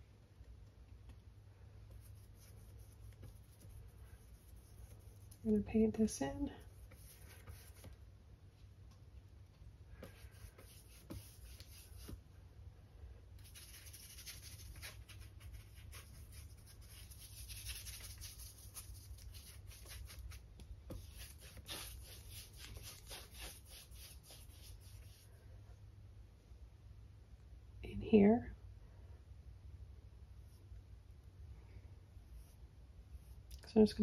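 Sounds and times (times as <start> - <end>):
paintbrush scratching on canvas: 1.9 - 8.0, 10.0 - 12.2, 13.4 - 25.3, 32.1 - 33.5.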